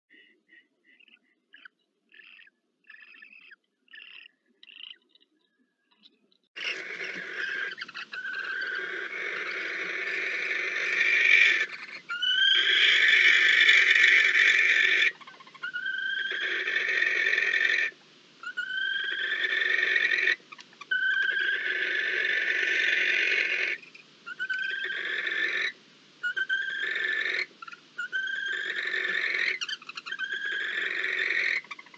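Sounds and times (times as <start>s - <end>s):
barn owl hissing screeches: 6.6s - 31.9s.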